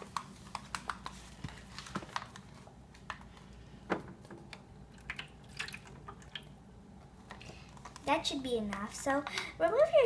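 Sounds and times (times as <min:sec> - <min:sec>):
water poured into plastic pool: 0:04.9 - 0:06.5.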